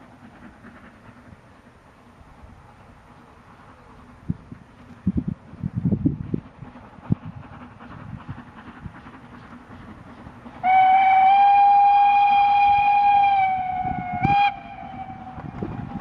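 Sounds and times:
wind noise on microphone: 3.9s - 16.0s
steam locomotive whistle: 10.6s - 15.9s.

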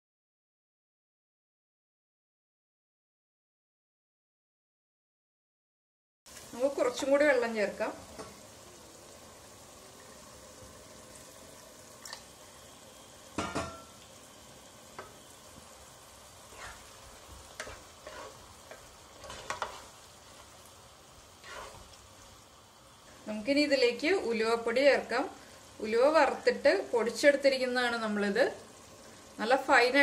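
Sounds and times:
pickle simmering with low sizzle: 6.3s - 30.0s
spatula scraping pot: 16.4s - 20.6s, 21.4s - 22.0s.

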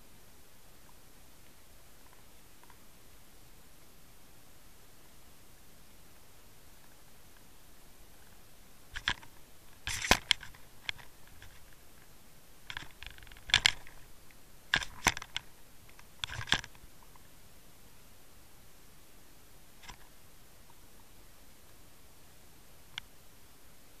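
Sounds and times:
underwater clicks and scraping knocks: 12.7s - 14.1s.

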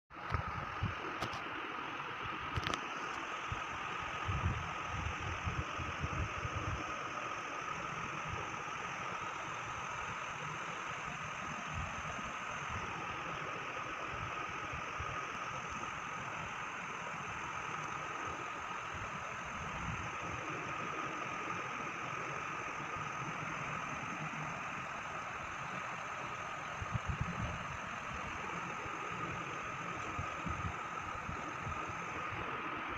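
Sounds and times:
machine hum with high whine: 0.1s - 32.9s.

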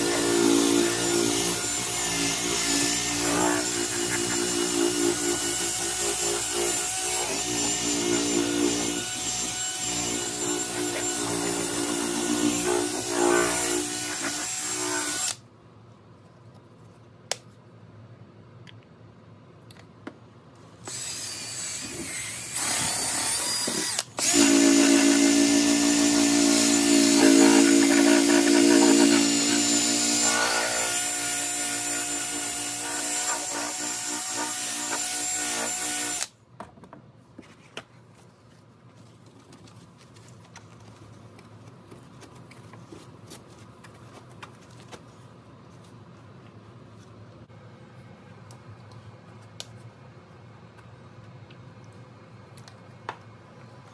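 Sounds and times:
drill motor whine: 0.0s - 15.4s, 20.9s - 36.3s.

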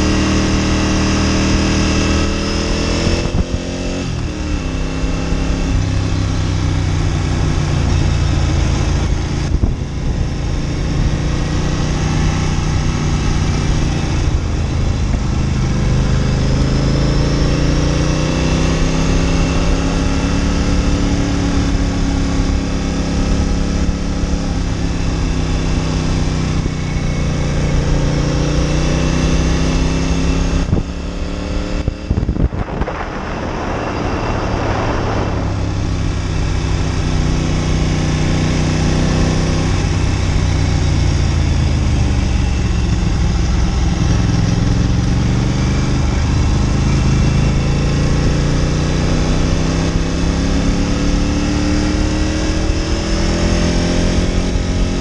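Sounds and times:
motorcycle engine revving: 0.0s - 55.0s
hissing rush: 32.3s - 36.7s.

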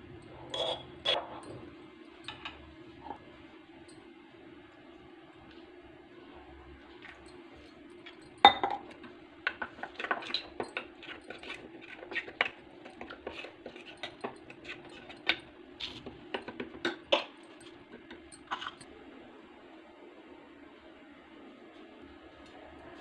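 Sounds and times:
metal spoon clinking in bowl: 0.5s - 2.6s, 9.9s - 16.0s, 16.8s - 18.9s.

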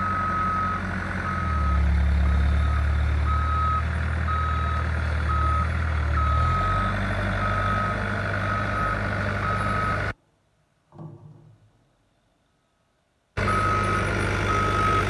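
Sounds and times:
vehicle reverse alarm beeping: 0.0s - 10.2s, 13.4s - 15.0s.

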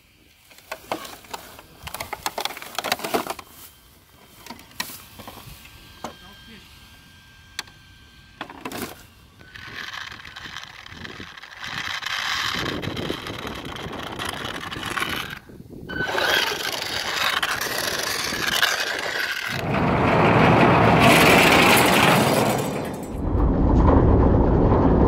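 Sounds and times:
rc truck motor and tyre noise: 0.0s - 23.4s
harsh rushing noise: 15.9s - 25.0s.

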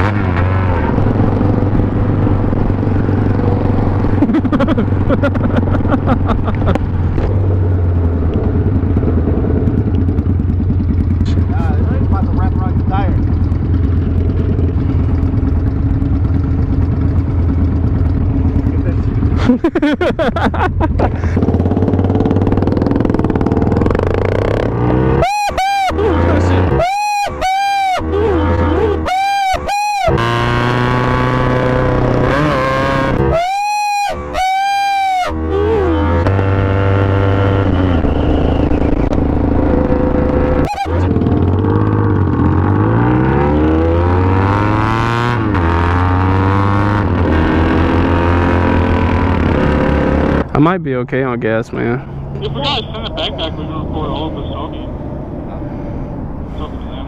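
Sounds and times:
motorcycle engine pulling away: 0.0s - 25.2s, 30.1s - 33.3s, 34.9s - 50.8s.

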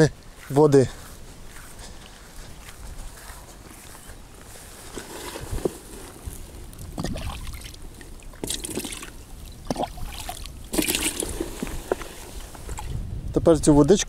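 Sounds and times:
cup scooping water: 4.9s - 13.0s
water splashing and trickling: 6.7s - 13.1s
water poured into a plastic bucket: 7.0s - 13.0s.

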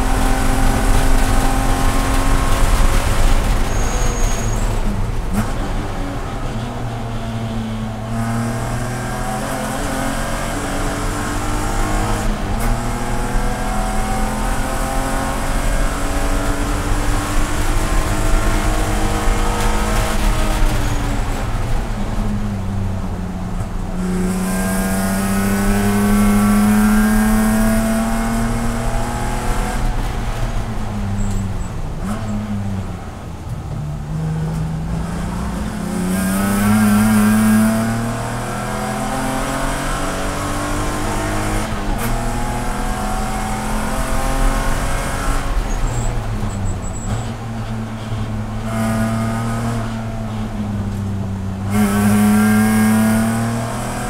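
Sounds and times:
race car engine revving: 24.0s - 31.4s, 51.6s - 54.0s.

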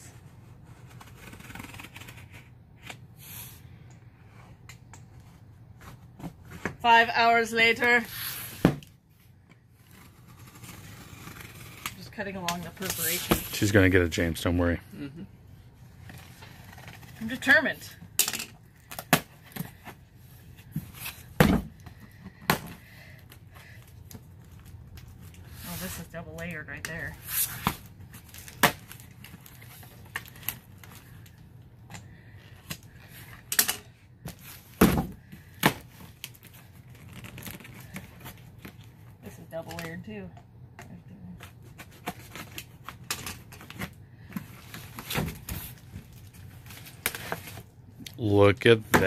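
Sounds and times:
cardboard tearing: 0.8s - 2.5s.

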